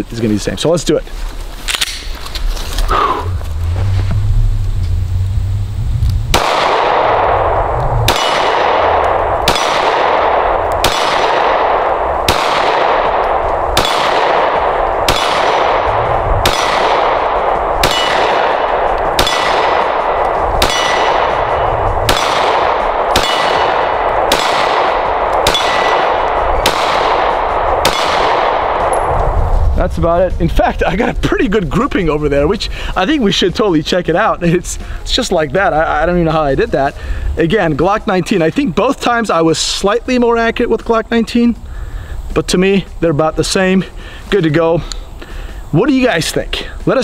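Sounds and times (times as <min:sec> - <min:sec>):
pistol shots: 0:06.3 - 0:29.2.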